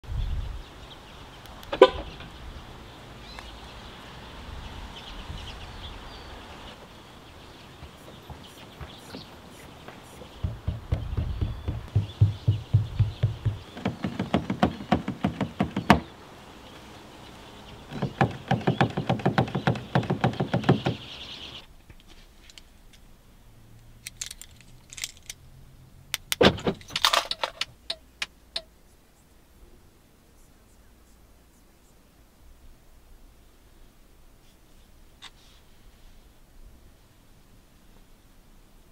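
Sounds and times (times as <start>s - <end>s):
door handles clunking: 7.8s - 16.1s
low thump: 10.3s - 14.4s.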